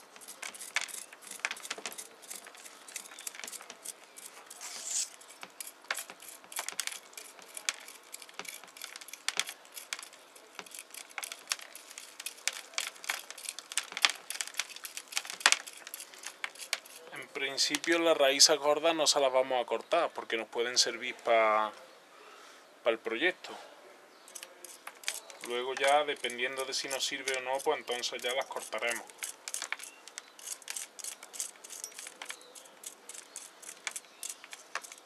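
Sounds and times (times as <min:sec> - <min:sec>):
short rustle: 0:00.0 - 0:18.0
soil crumbling and crackling: 0:00.0 - 0:18.8, 0:24.2 - 0:35.0.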